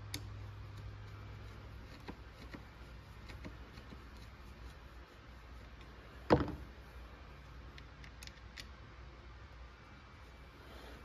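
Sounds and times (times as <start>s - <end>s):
small clicks of hand work: 0.0s - 4.8s.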